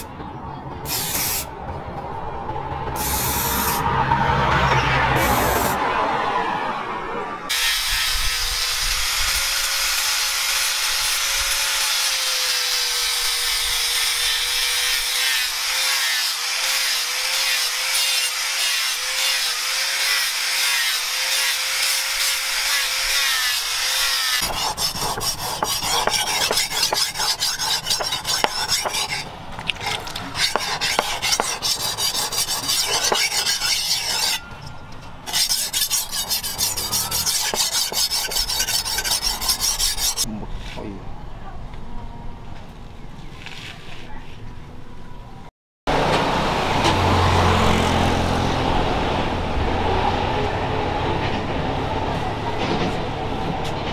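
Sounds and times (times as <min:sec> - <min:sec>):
angle grinder grinding steel: 0:07.5 - 0:40.3
blade rubbed on whetstone: 0:22.6 - 0:34.4, 0:35.3 - 0:40.3.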